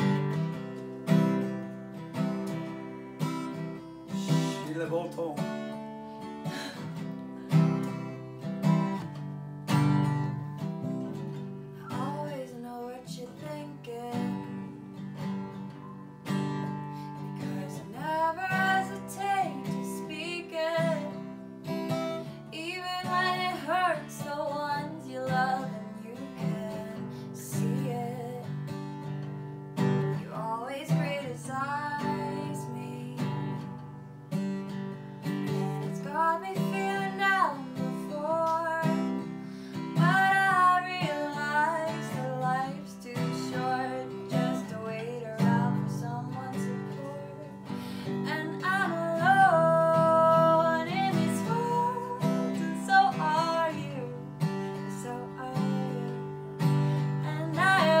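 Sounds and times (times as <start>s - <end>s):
acoustic guitar strumming: 0.0s - 58.0s
woman singing: 10.0s - 15.9s, 17.2s - 29.2s, 30.1s - 33.7s, 35.2s - 58.0s.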